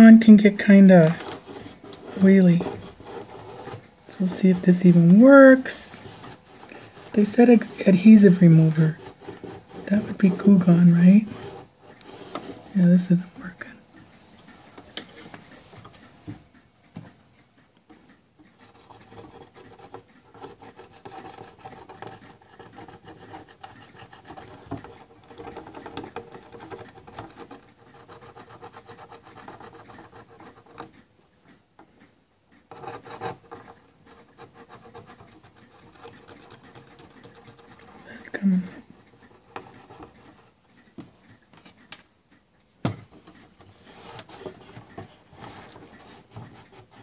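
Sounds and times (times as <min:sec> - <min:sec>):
cotton pad scrubbing: 0:00.0 - 0:16.3.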